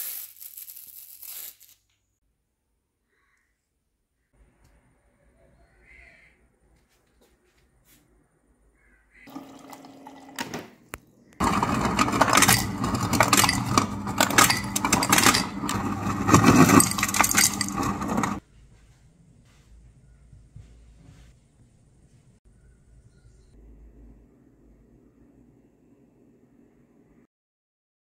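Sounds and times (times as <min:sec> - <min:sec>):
motor hum: 0:11.3 - 0:18.4
ice cubes clattering into glass: 0:11.4 - 0:18.4.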